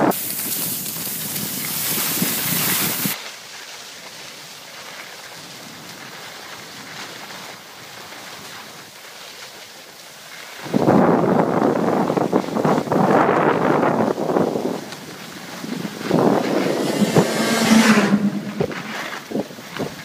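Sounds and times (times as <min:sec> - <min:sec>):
wind on microphone: 0:00.0 - 0:03.2, 0:10.6 - 0:20.0
skis sliding over snow: 0:00.0 - 0:20.0.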